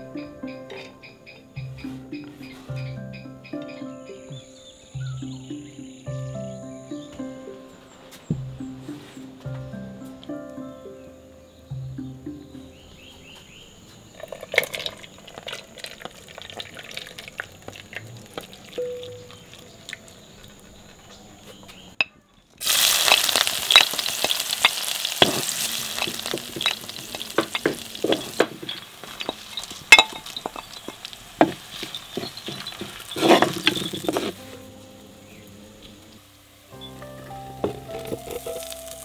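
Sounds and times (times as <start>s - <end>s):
fish frying in oil: 14.2s - 20.3s, 22.6s - 34.4s, 37.6s - 39.0s
spoon clinking: 23.0s - 30.9s.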